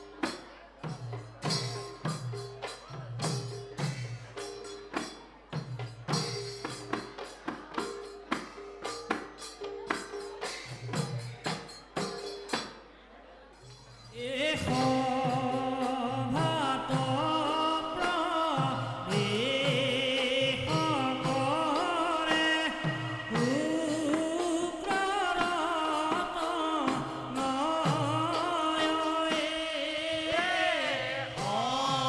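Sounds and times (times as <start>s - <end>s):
ringing cymbals: 0.0s - 12.9s
sung chant: 14.1s - 32.0s.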